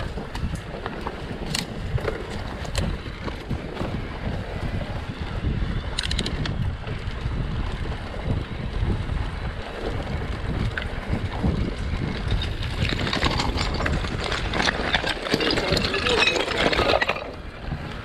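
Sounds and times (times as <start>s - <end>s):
bike rattling over dirt trail: 0.0s - 18.0s
wind buffeting microphone: 0.0s - 18.0s.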